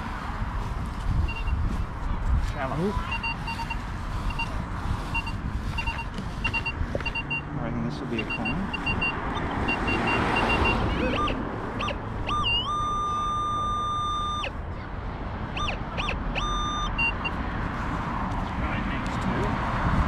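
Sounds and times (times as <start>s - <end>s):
metal detector beeping: 1.3s - 1.6s, 3.0s - 7.5s, 8.2s - 14.6s, 15.5s - 17.4s.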